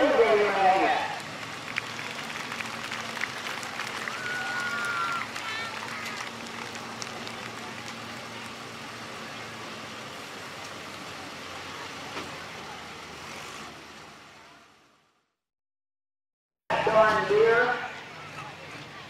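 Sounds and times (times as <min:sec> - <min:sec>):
tractor engine running low: 0:00.0 - 0:15.0
open-air noise: 0:00.0 - 0:15.4, 0:16.7 - 0:19.0.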